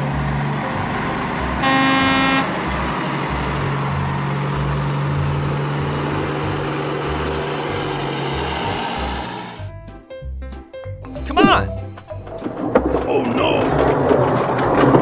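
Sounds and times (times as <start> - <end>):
heavy vehicle engines rumbling: 0.0 - 9.7, 11.4 - 15.0
horn honk: 1.6 - 2.7.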